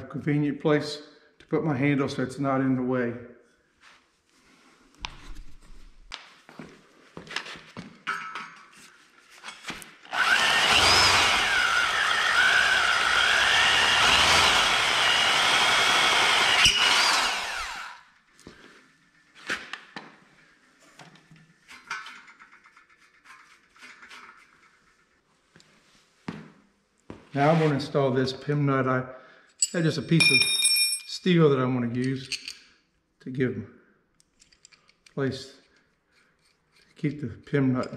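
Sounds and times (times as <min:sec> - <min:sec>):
electric drill boring into metal: 0:10.1 - 0:18.0.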